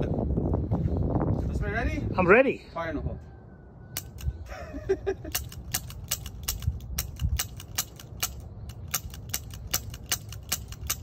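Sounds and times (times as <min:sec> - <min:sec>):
revolver hammer clicking: 0:05.3 - 0:11.0.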